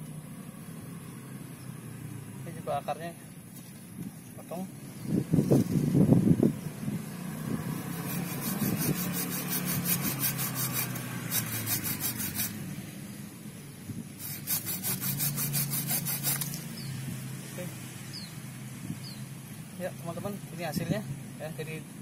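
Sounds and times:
hand saw cutting a root: 7.8s - 12.6s, 14.2s - 16.8s.

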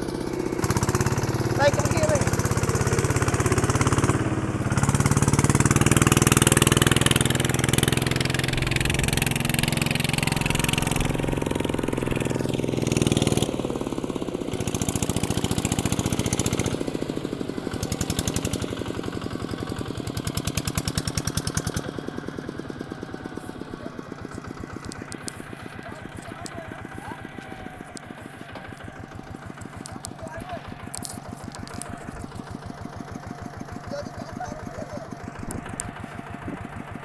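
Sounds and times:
diesel tractor engine under load: 0.0s - 37.0s.

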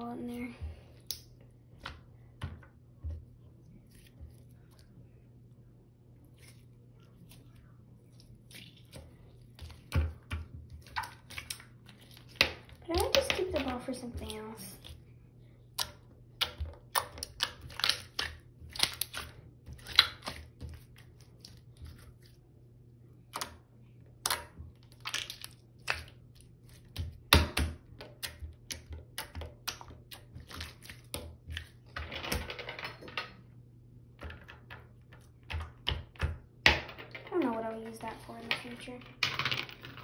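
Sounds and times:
sticky goo squelching and crackling: 16.8s - 22.4s, 24.2s - 27.1s.

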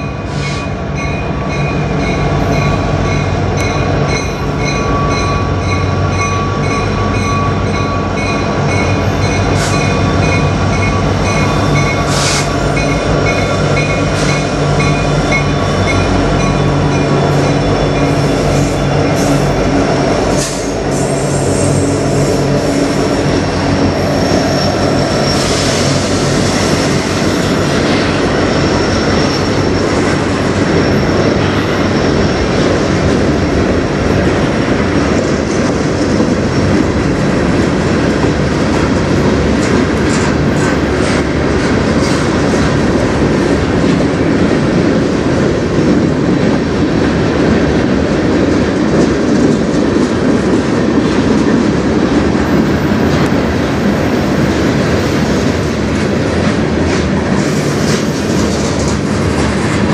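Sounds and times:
diesel locomotive engine drone: 0.0s - 59.9s
freight cars rumbling and clattering: 0.0s - 59.9s
high wheel squeal: 23.8s - 32.6s.

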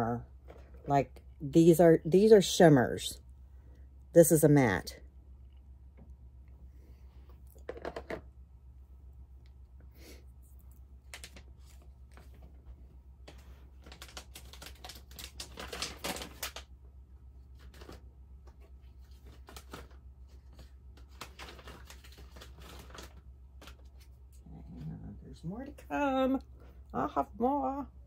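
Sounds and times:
steady low hum: 0.0s - 14.1s
packaging clicks and rustles: 11.0s - 12.6s, 13.3s - 16.7s, 17.6s - 24.1s.

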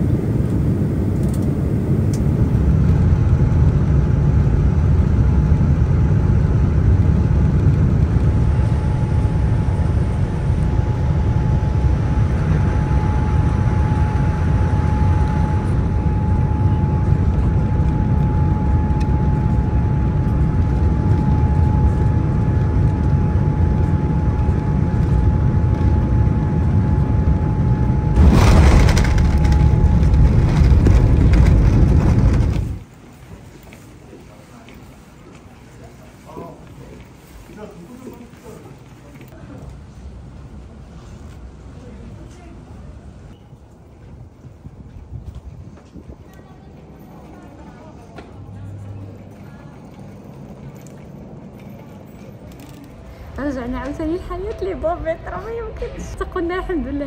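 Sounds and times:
jet engines rumbling in cabin: 0.0s - 57.0s
rushing surge of plane touching down: 27.7s - 32.9s.

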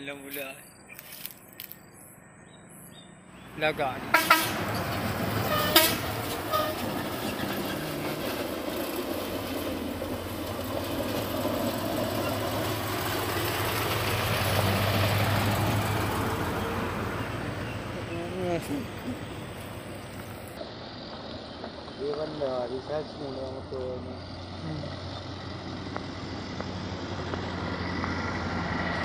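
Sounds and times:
road noise: 0.0s - 29.0s
truck engine running: 3.4s - 29.0s
truck horn toot: 4.0s - 7.1s.

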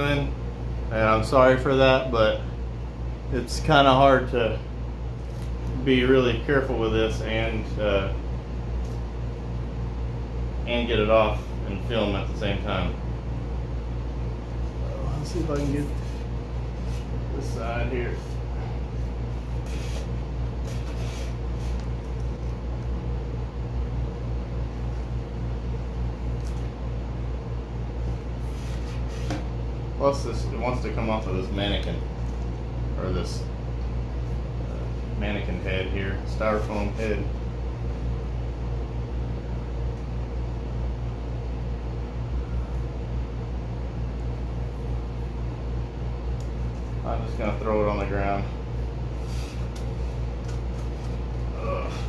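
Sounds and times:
low mechanical hum: 0.0s - 52.0s
masking tape peeling: 19.4s - 22.6s.

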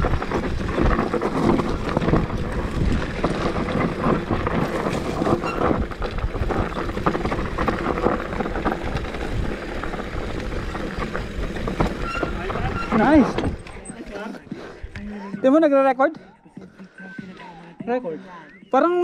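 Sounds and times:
bike rattling over bumps: 0.0s - 14.3s
wind buffeting microphone: 0.0s - 15.1s
bike tyres on loose gravel: 0.0s - 15.8s.

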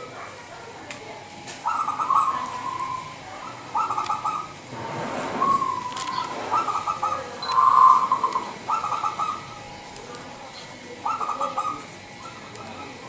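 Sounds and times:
dove cooing: 1.6s - 4.6s, 5.2s - 9.8s, 10.9s - 12.8s.

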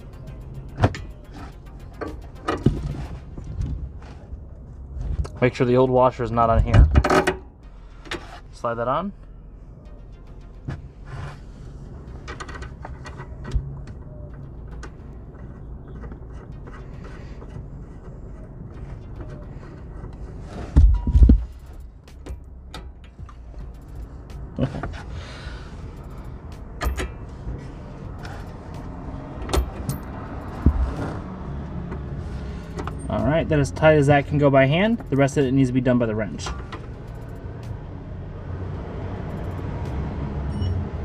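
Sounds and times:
metal parts clicking and knocking: 0.0s - 3.8s, 25.8s - 27.3s, 28.0s - 31.2s.

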